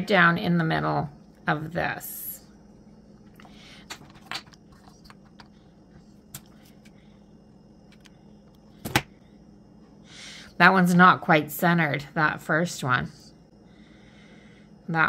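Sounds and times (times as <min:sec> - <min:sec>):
wooden pieces rustling and clicking: 0:03.8 - 0:05.6.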